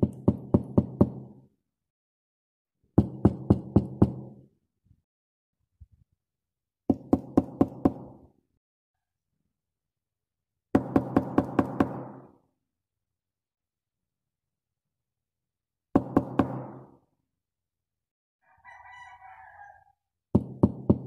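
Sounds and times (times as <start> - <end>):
knocking on a door: 0.0 - 1.3, 3.0 - 4.4, 6.9 - 8.1, 10.8 - 12.2, 16.0 - 16.8, 20.3 - 21.0.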